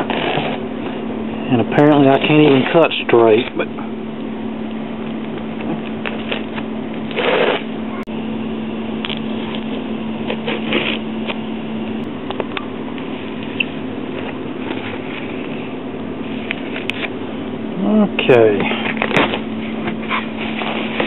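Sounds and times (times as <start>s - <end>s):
packing tape tearing: 0.0s - 0.6s, 6.0s - 7.7s, 10.2s - 11.4s
steady low hum: 0.0s - 21.0s.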